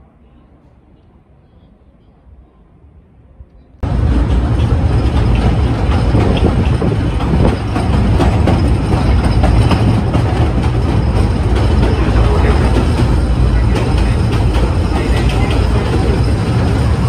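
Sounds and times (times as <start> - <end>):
train rumbling: 0.0 - 17.0
wheels and couplings clanking: 3.8 - 17.0.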